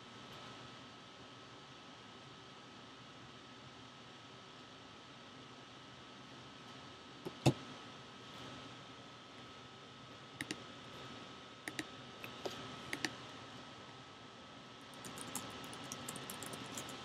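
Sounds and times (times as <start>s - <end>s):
computer keyboard typing: 15.0s - 17.0s.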